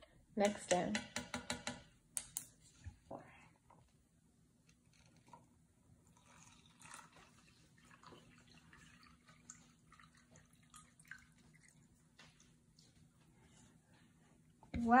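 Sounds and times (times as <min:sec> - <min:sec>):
liquid trickling into cup: 0:06.0 - 0:12.0
small drips: 0:06.1 - 0:13.0.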